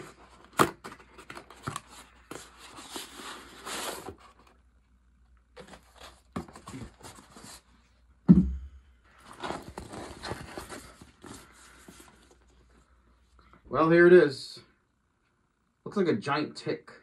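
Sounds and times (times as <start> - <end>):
heavy thump: 8.3 - 8.8
plastic packaging rustling: 9.1 - 12.6.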